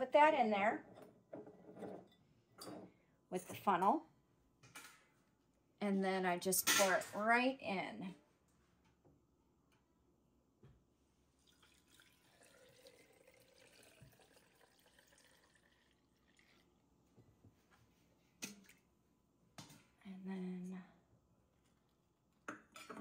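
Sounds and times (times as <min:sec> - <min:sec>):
milk pouring into strainer: 0:11.4 - 0:16.7.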